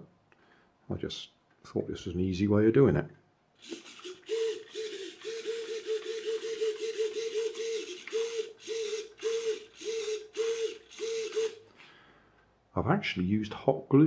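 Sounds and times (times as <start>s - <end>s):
small servo whirring in buzzes: 3.6s - 11.6s.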